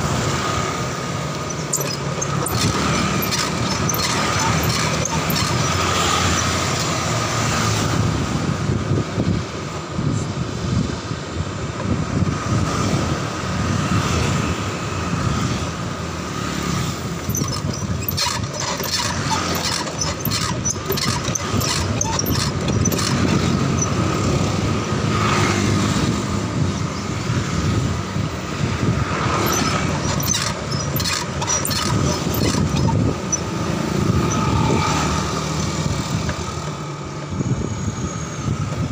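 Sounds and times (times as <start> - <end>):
bicycle tyres and wind rumble: 0.0 - 38.9
street traffic with motorbikes: 0.0 - 38.9
bicycle basket rattling: 1.4 - 7.0, 17.2 - 24.2, 29.2 - 34.6.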